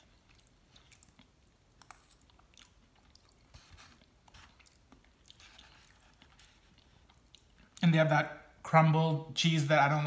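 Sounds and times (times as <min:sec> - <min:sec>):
close chewing: 0:00.0 - 0:07.8.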